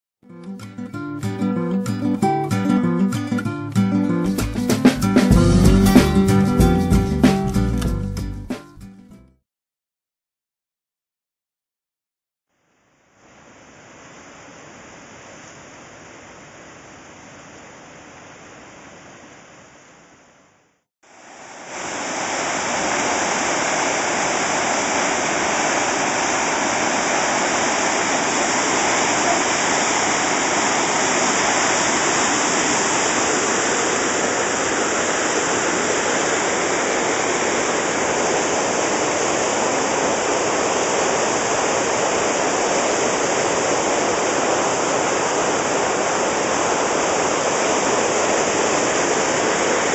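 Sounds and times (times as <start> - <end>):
water rushing and churning: 21.1 - 49.9.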